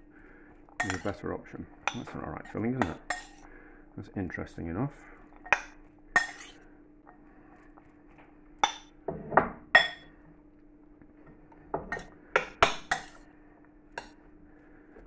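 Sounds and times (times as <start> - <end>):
faint low hum: 0.0 - 15.0
spoon clinking against a bowl: 0.8 - 1.2, 1.8 - 3.4, 5.4 - 6.6, 8.6 - 8.9, 9.8 - 10.1, 11.9 - 13.2.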